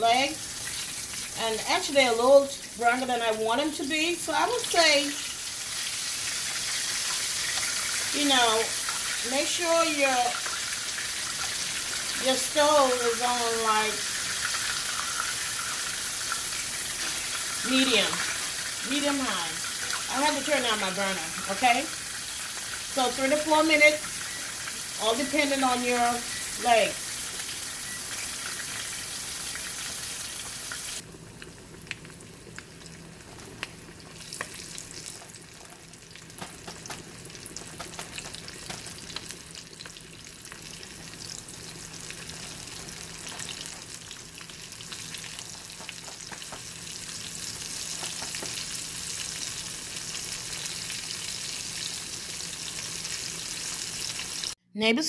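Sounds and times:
chicken frying in hot oil: 0.0s - 54.6s.

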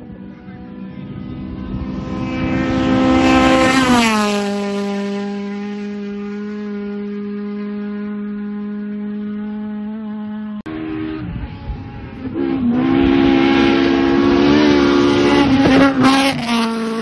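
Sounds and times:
race car engine passing: 0.0s - 17.0s.

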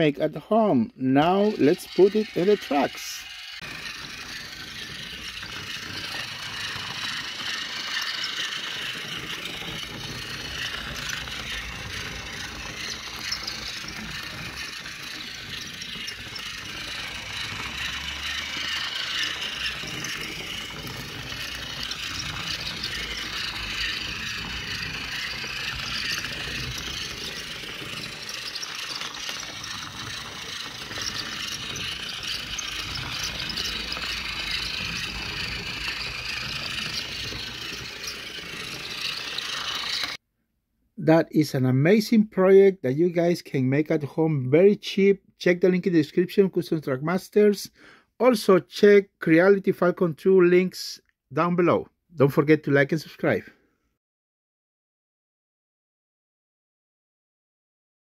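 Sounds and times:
toy train motor whirring: 0.0s - 40.2s.

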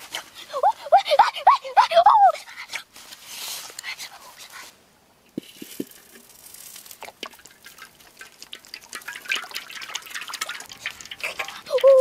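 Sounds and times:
fire crackling: 5.4s - 11.2s
oil poured into hot wok: 6.0s - 11.7s.

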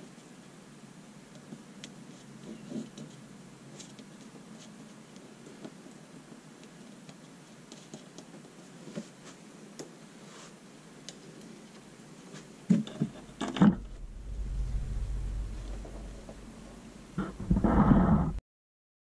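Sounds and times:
low steady hum: 13.0s - 18.4s.

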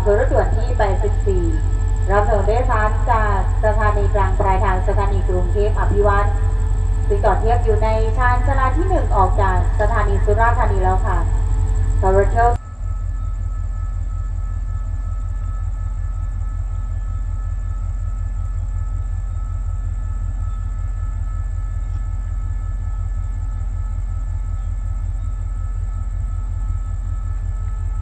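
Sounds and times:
diesel locomotive idling: 0.0s - 28.0s
faint steady whine: 0.0s - 28.0s.

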